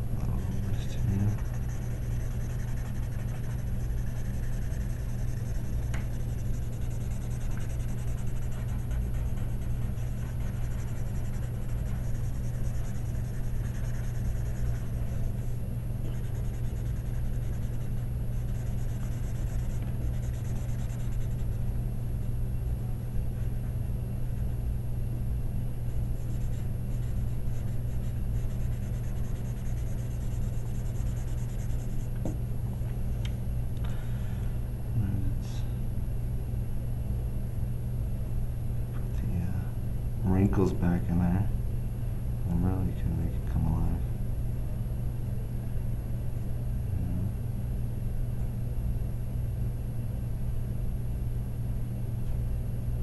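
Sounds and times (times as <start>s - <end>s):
steady low hum: 0.0s - 53.0s
pencil scratching on paper: 0.4s - 21.6s, 26.0s - 32.1s.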